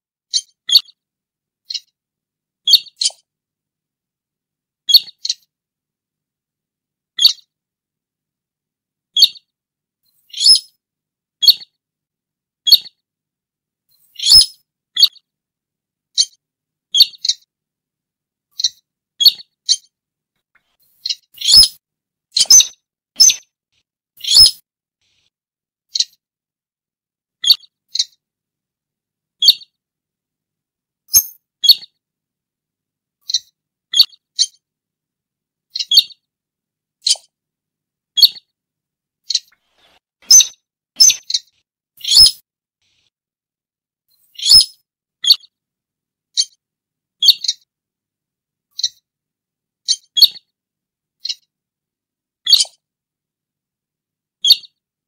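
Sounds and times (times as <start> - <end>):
rail bird short sharp calls: 14.2 - 15.1, 24.2 - 24.6, 40.2 - 42.4.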